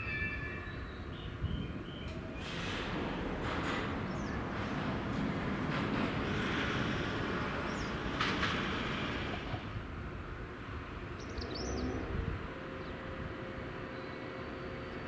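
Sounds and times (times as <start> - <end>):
train engine rumble: 0.0 - 15.0
wheels rushing on rails: 0.3 - 15.0
bird chirping: 11.2 - 12.0.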